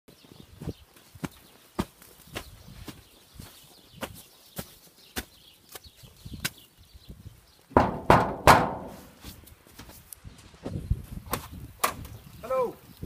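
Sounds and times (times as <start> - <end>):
loud thuds: 7.8 - 9.2.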